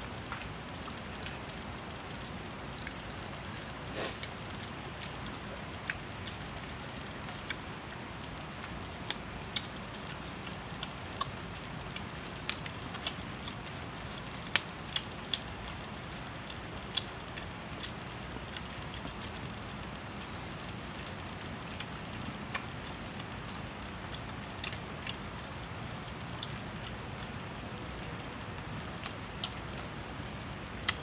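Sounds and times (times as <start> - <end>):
wood fire crackling: 0.0 - 31.0
fire pops and snaps: 7.3 - 18.1.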